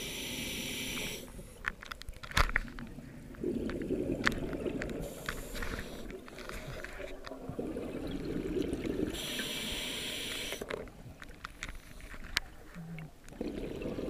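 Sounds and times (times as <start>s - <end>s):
regulator inhalation hiss: 0.0s - 1.5s, 9.1s - 10.7s
underwater exhale bubbling: 3.1s - 6.3s, 7.4s - 10.7s, 12.5s - 14.0s.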